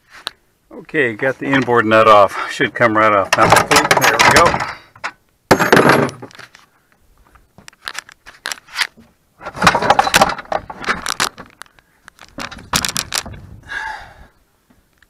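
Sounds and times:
seat hardware clinking and rattling: 3.4 - 6.4.

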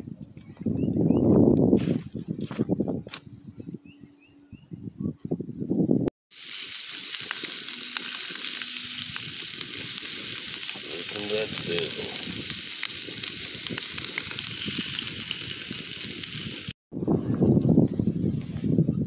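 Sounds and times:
sausages sizzling in a skillet: 6.3 - 16.8.

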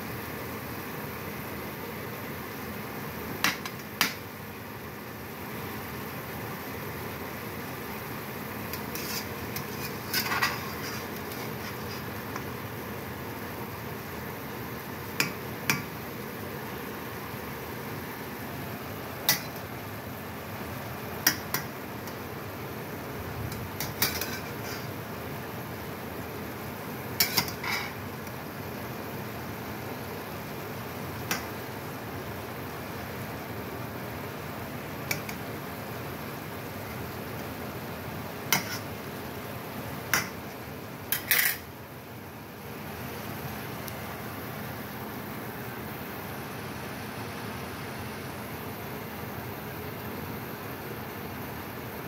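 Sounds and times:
steady low hiss: 0.0 - 52.0
metal spatula scraping skillet: 8.7 - 12.2, 23.8 - 25.0, 27.2 - 28.0, 38.5 - 38.9, 41.1 - 41.6.

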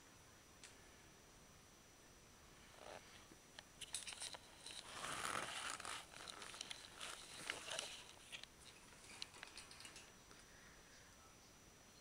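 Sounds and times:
small clicks and ticks: 3.6 - 10.5
camera handling rustling: 3.8 - 8.5.

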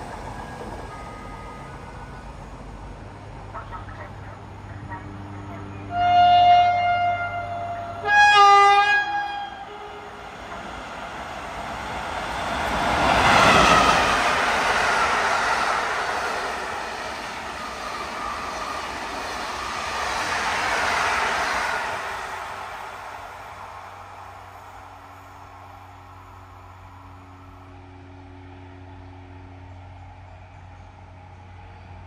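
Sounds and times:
train rushing past: 0.0 - 32.0
train horn blasts: 5.9 - 10.2.

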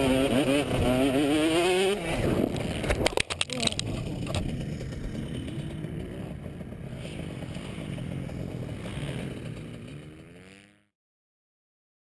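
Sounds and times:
dirt bike engine idling: 0.0 - 10.8.

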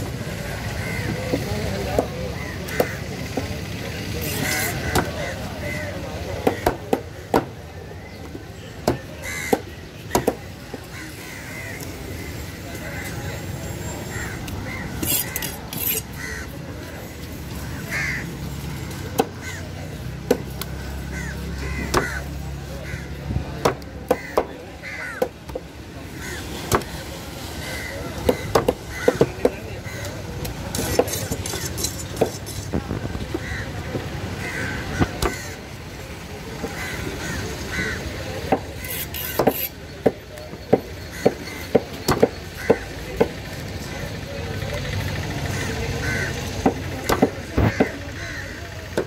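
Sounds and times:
crows cawing: 0.6 - 1.4, 2.3 - 3.2, 9.0 - 10.0, 10.8 - 13.2, 14.1 - 16.6, 17.7 - 26.6, 27.6 - 30.2, 33.3 - 35.8, 36.7 - 38.2, 41.0 - 41.9, 42.5 - 43.2, 45.4 - 49.0
cleaver chopping fish on wood: 6.4 - 7.6, 8.8 - 10.9, 19.2 - 19.4, 21.8 - 22.2, 23.6 - 24.5, 26.6 - 27.0, 28.2 - 29.6, 35.0 - 35.4, 38.4 - 43.4, 46.6 - 48.0.

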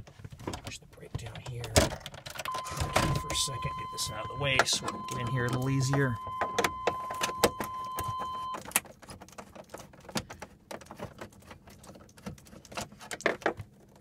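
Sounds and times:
electronic beep: 2.5 - 8.6.

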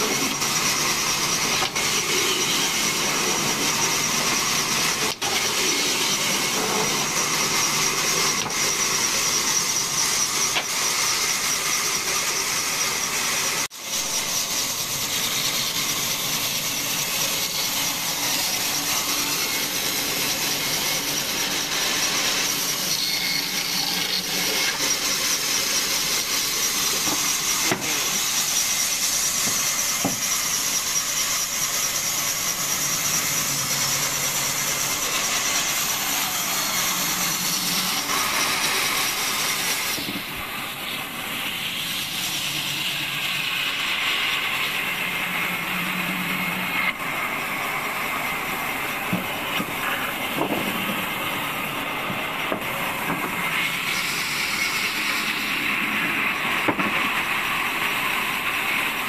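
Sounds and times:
band saw blade cutting wood: 0.0 - 59.0.

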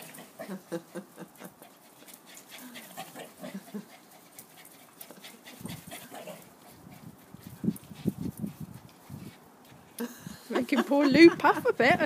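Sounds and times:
dog panting hard: 1.6 - 9.8.

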